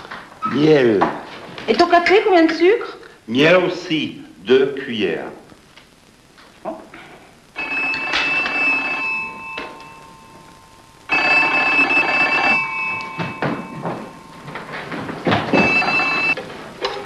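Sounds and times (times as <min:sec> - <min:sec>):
telephone ringing: 0:07.5 - 0:16.4.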